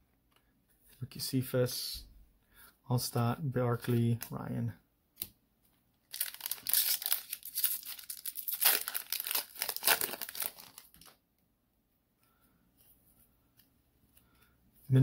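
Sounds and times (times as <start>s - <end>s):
foil wrapper tearing and crinkling: 6.1s - 11.1s.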